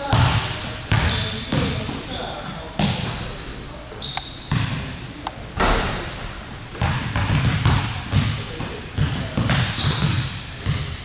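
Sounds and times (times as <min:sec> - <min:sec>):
short high squeaks: 0:03.0 - 0:05.8
basketball bouncing on hardwood: 0:04.5 - 0:04.8, 0:05.6 - 0:08.4.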